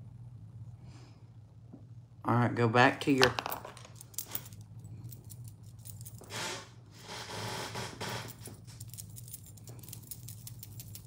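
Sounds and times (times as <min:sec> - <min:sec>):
steady low hum: 0:00.0 - 0:11.0
bracelets clicking and clinking: 0:03.2 - 0:06.3, 0:08.3 - 0:11.0.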